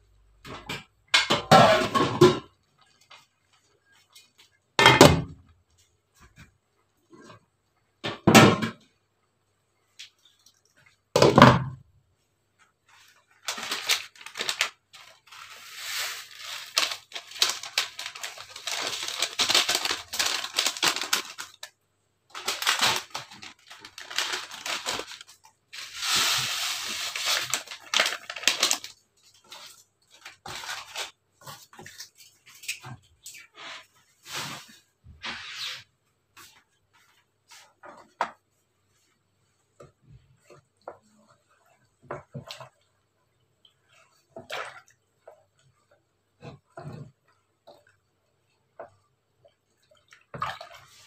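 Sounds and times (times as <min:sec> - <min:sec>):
packet tearing and crinkling: 0:13.4 - 0:29.0.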